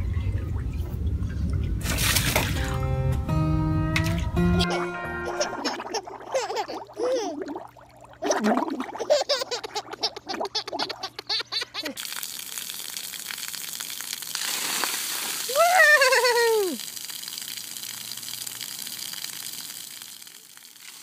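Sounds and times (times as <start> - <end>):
baby laughing: 4.6 - 7.6, 8.9 - 12.0, 15.6 - 16.8
fountain jets spraying: 11.6 - 21.0
person calling out: 15.5 - 16.8.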